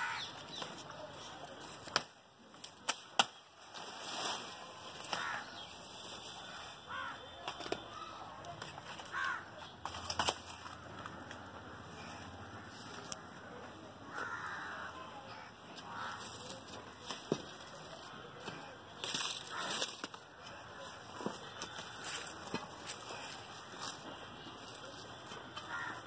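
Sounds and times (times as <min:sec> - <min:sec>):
crows cawing: 0:00.0 - 0:00.4, 0:05.1 - 0:05.7, 0:06.4 - 0:07.3, 0:09.0 - 0:09.6, 0:10.6 - 0:16.6, 0:19.4 - 0:19.9, 0:25.6 - 0:26.0.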